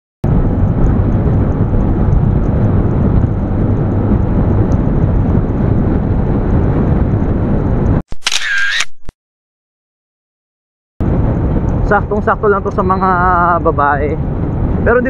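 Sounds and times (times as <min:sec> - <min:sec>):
wind rumble on microphone: 0:00.2 - 0:08.0, 0:11.0 - 0:15.0.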